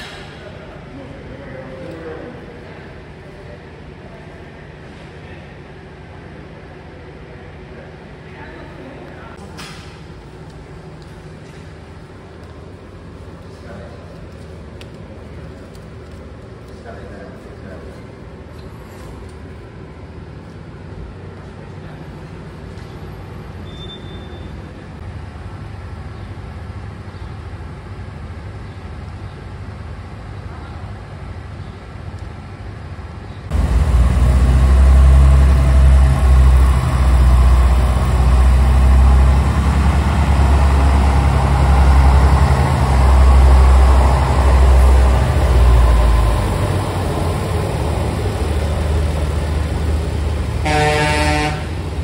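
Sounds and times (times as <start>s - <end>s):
tram rumbling: 0.0s - 52.0s
tram horn toot: 50.6s - 52.0s.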